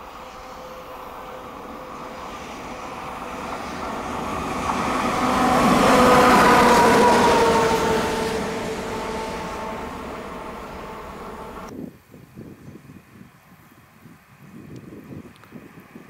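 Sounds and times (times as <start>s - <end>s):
train passing by: 0.0s - 11.7s
train whine: 0.0s - 11.7s.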